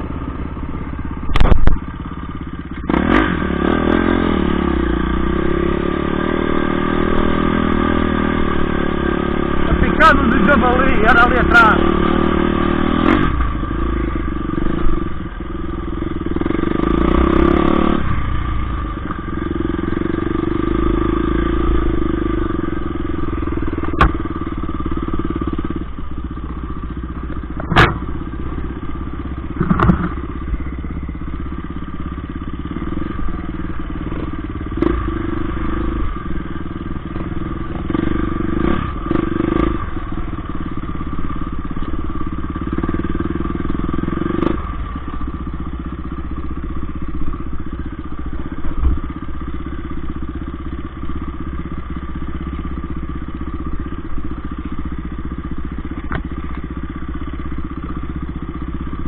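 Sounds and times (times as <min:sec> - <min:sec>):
dirt bike engine running: 0:00.0 - 0:59.0
sharp knocks: 0:23.9 - 0:24.2, 0:27.6 - 0:28.1, 0:29.6 - 0:30.2.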